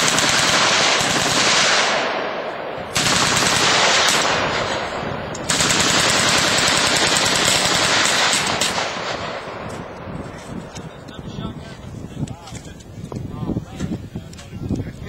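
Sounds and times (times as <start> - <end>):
machine gun firing bursts: 0.0 - 2.3, 2.9 - 9.6.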